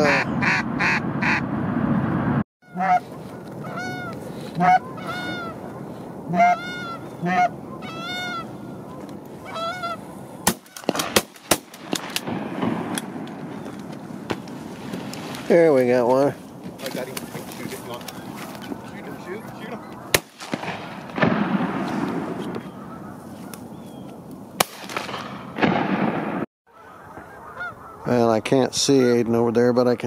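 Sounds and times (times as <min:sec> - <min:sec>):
geese honking: 0:00.0 - 0:01.5, 0:02.6 - 0:11.2, 0:22.0 - 0:24.0, 0:26.7 - 0:29.4
sharp cracks: 0:10.4 - 0:15.4, 0:20.1 - 0:22.7, 0:24.6 - 0:26.5.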